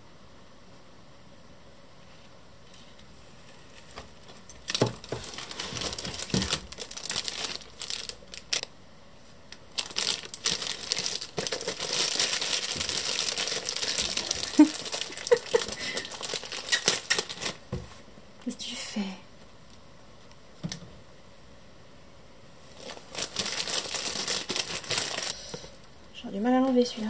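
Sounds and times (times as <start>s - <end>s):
packaging crinkling and rustling: 3.3s - 8.7s, 9.6s - 17.8s, 22.7s - 25.9s.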